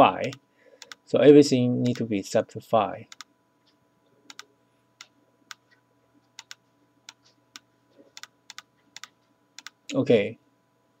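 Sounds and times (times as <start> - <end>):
keyboard and mouse clicks: 1.8 - 2.1, 3.1 - 10.0.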